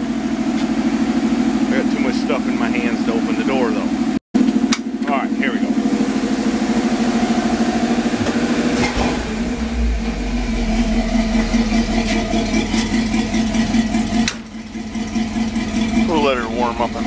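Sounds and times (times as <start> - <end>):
pickup engine idling: 0.0 - 8.7, 9.3 - 17.0
clunk: 14.2 - 14.5.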